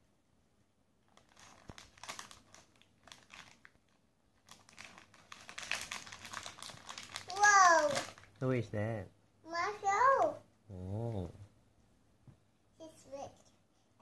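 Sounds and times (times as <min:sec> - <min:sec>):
plastic packet crinkling: 0:01.1 - 0:08.4.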